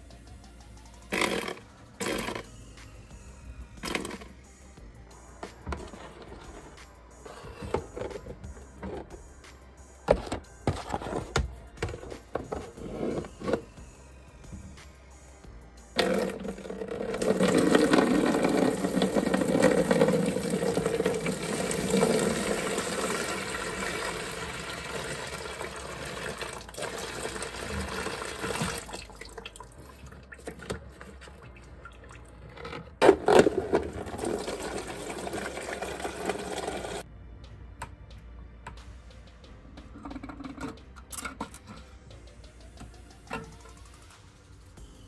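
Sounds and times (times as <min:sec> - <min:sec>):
water splashing into plastic tray: 0:16.0 - 0:29.7.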